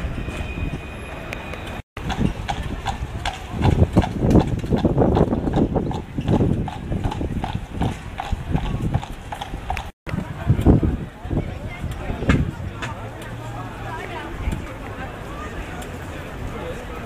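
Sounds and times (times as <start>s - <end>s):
horse hooves on pavement: 2.0s - 9.9s.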